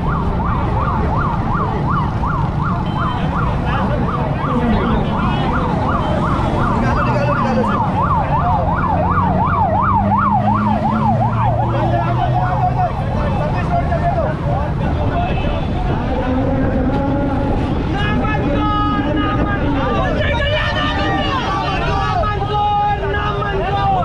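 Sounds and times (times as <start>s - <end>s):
siren yelping: 0.0s - 14.5s.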